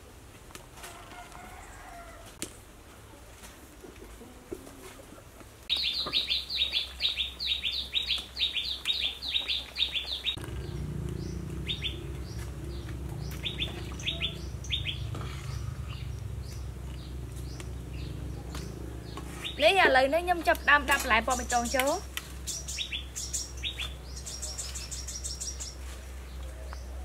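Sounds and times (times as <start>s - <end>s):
small bird chirping: 5.7s - 19.9s, 20.6s - 25.9s
steady low rumble: 10.2s - 19.4s.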